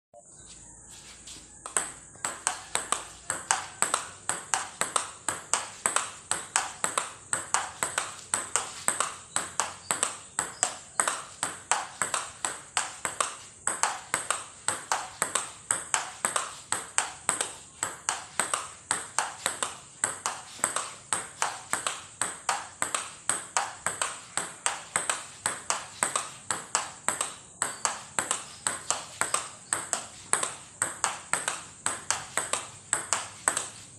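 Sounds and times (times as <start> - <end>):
table tennis ball pocks: 1.3 - 33.9.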